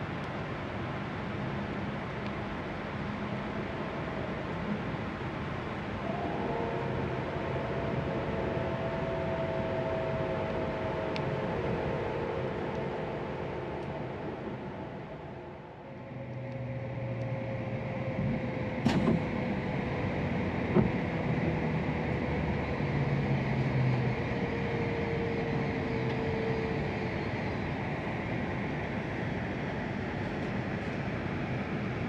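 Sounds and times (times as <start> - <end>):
train running noise: 0.0 - 32.0
train whine falling in pitch: 5.6 - 28.0.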